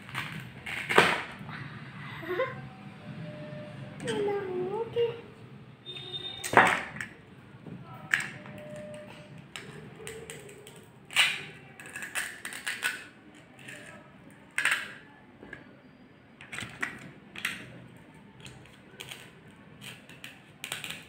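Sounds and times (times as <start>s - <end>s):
plastic toy pieces clicking: 9.5s - 15.1s, 16.4s - 17.7s, 18.4s - 21.0s.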